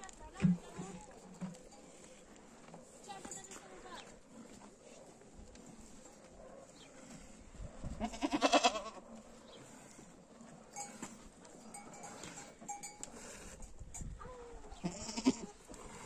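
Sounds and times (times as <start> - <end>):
livestock bells clinking: 0.7 - 2.4, 3.0 - 4.1, 10.7 - 14.2
goat bleating: 8.0 - 9.0, 14.7 - 15.6.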